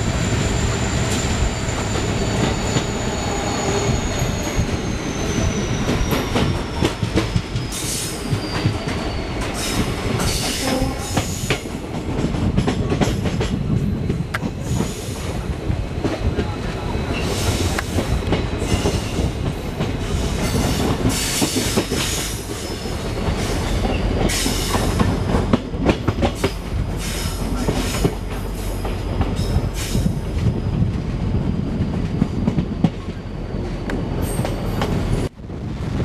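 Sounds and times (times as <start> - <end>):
high wheel squeal: 0.0 - 11.6
train rumbling on rails: 0.0 - 36.0.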